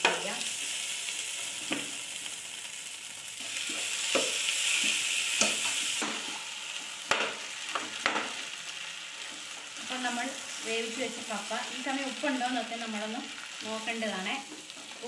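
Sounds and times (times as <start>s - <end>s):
oil sizzling in a pan: 0.0s - 15.0s
metal spoon knocking on pan: 7.1s - 8.3s.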